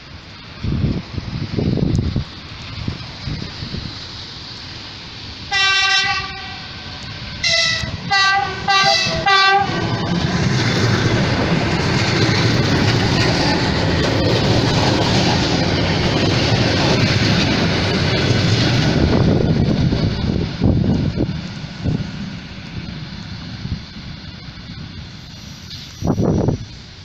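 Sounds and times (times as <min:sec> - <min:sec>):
train wheels rolling over rails: 0:00.0 - 0:27.0
electric train horn: 0:05.5 - 0:10.1.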